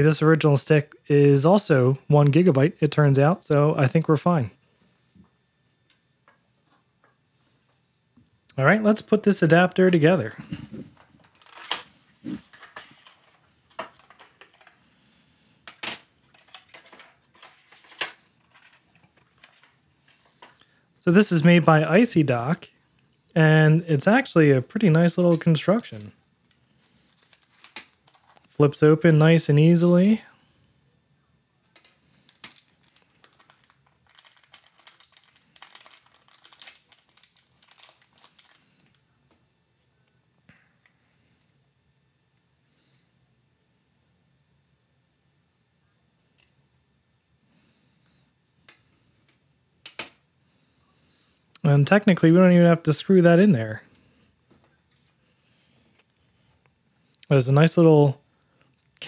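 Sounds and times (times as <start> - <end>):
crinkling metallic plastic bag: 10.0 - 14.9, 15.7 - 20.6, 26.8 - 28.6, 31.7 - 39.0.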